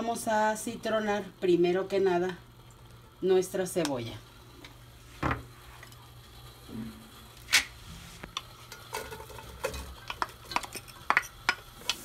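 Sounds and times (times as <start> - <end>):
spoon scraping in a pot: 8.7 - 12.0.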